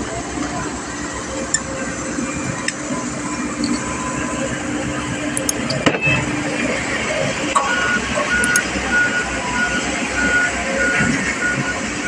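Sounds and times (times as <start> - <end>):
road roller engine droning: 0.0 - 12.0
high warning beeps: 7.6 - 12.0.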